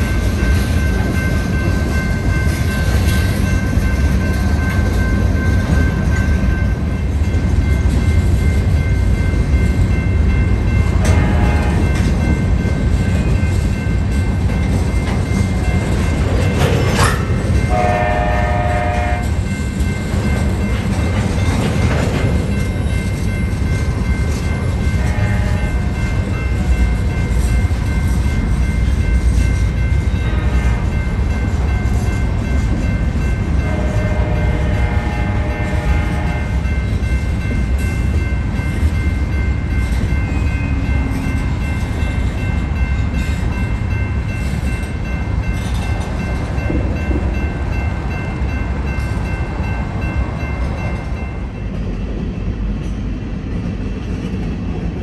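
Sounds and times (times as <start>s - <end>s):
freight train rumbling past: 0.0s - 55.0s
locomotive air horn: 11.1s - 11.8s, 17.7s - 19.3s, 25.0s - 25.8s, 33.6s - 36.6s.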